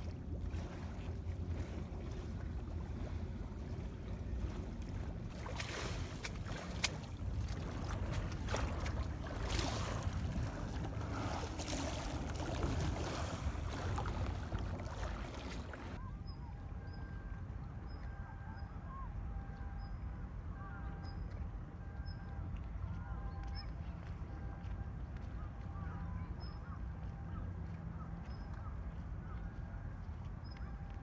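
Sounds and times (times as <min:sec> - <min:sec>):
sea water splashing against wall: 0:04.5 - 0:16.0
wind buffeting microphone: 0:06.0 - 0:16.0.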